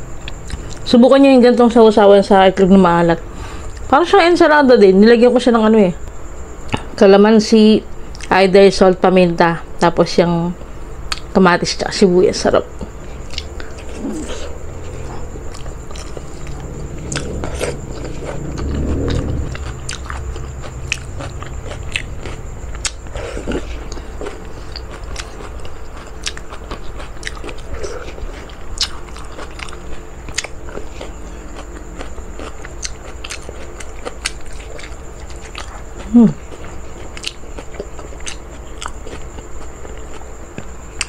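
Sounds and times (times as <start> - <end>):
person chewing and biting: 13.2 - 41.0.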